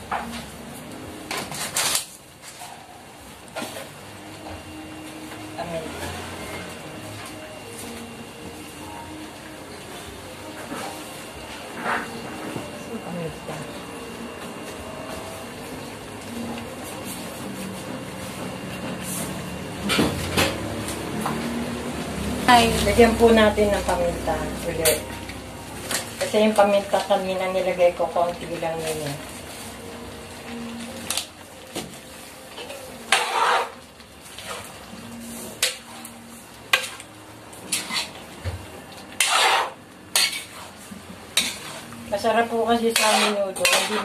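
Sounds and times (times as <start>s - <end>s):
stove humming and hissing: 0.0s - 44.0s
metal ladle scraping a wok: 33.1s - 33.8s, 37.6s - 38.2s, 39.2s - 42.0s, 42.8s - 44.0s
ladle clanking against wok: 42.9s - 44.0s.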